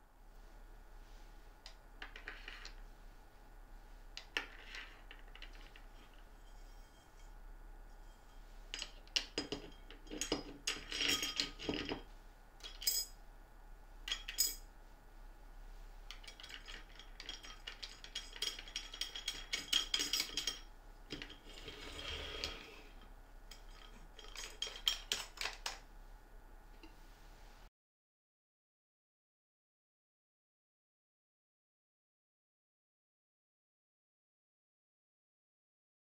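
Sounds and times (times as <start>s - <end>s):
metal sliding scrape: 4.4s - 9.0s, 21.2s - 23.0s
metallic clicks and rattles: 16.1s - 21.5s, 23.5s - 25.8s.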